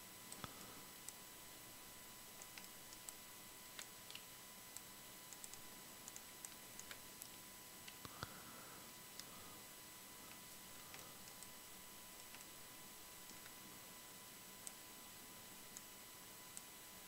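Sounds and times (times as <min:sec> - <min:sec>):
computer mouse and keyboard clicks: 0:02.4 - 0:08.4, 0:10.2 - 0:11.6, 0:12.2 - 0:12.6, 0:13.2 - 0:13.6.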